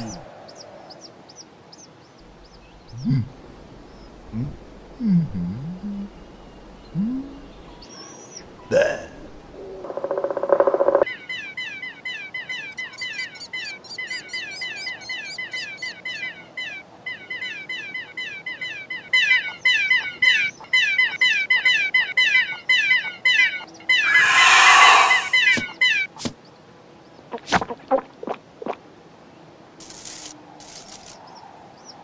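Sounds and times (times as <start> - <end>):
cartoon chicks cheeping: 19.1 - 26.1
loud harsh screech: 24.0 - 25.5.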